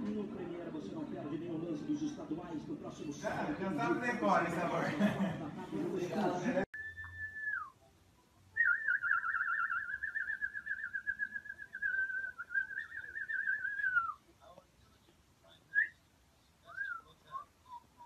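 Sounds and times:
short whistled chirp: 6.8s - 7.8s.

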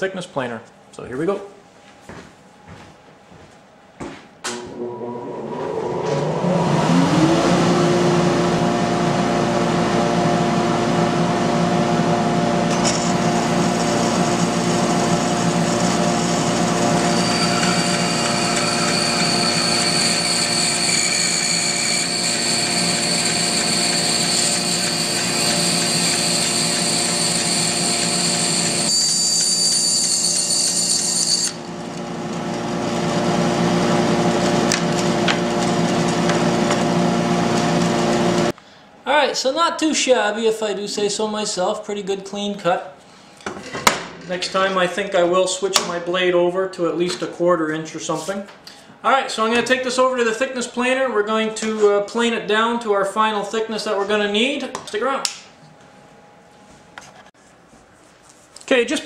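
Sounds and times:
bandsaw and dust collector humming: 4.5s - 38.5s
bandsaw blade cutting wood: 14.0s - 31.6s.

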